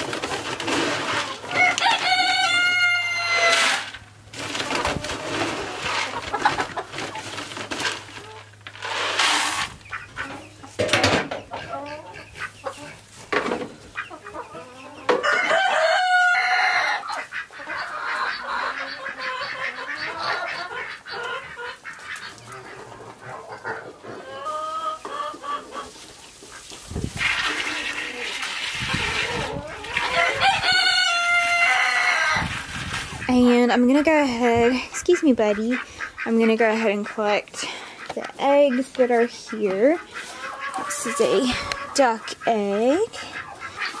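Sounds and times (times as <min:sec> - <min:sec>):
chickens clucking: 0:00.0 - 0:44.0
rooster crowing: 0:01.5 - 0:03.8, 0:15.1 - 0:17.1, 0:30.0 - 0:32.5.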